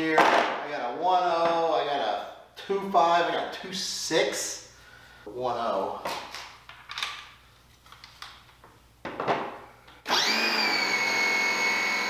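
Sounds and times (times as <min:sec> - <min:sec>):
pressure washer motor whine: 0:10.1 - 0:12.0.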